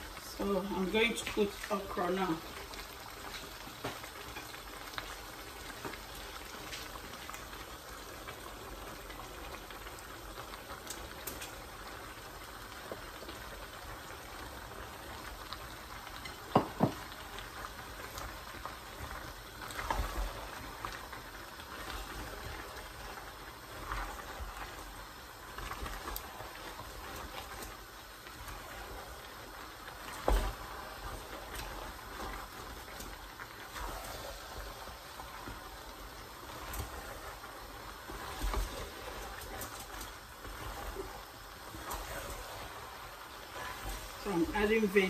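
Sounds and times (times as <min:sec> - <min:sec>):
stew bubbling in pot: 0:00.0 - 0:45.0
spatula scraping and stirring: 0:15.6 - 0:45.0.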